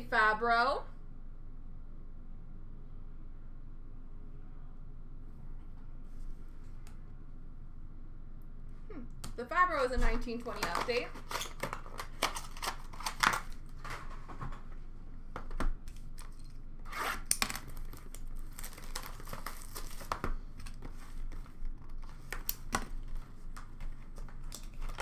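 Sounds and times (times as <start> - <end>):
packaging tearing and crinkling: 10.6 - 14.2, 15.9 - 25.0.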